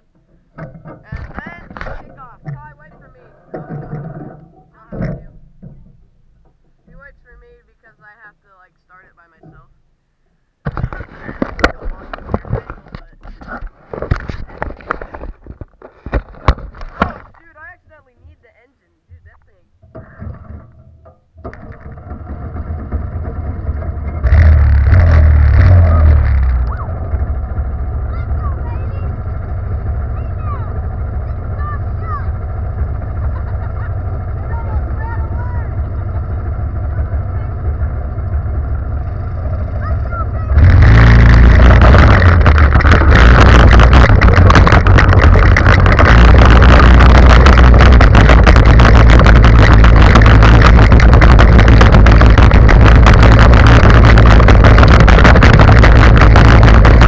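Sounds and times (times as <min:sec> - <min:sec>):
go-kart engine revving: 0:21.5 - 0:57.0.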